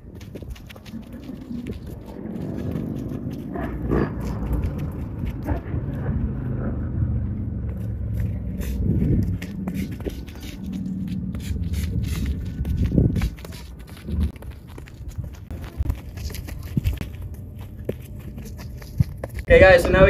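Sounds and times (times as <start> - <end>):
steady low rumble: 0.0 - 20.0
soccer ball touches: 7.6 - 20.0
footsteps on grass: 7.8 - 20.0.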